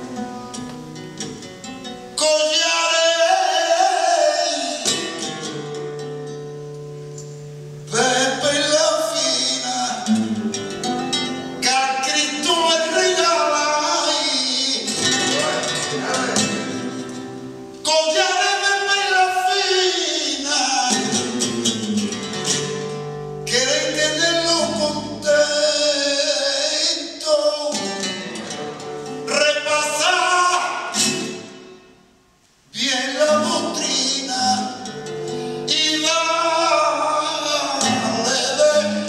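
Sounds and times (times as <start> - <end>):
man singing flamenco: 0.0 - 6.9, 7.5 - 31.9, 32.7 - 39.0
flamenco guitar: 0.0 - 39.0.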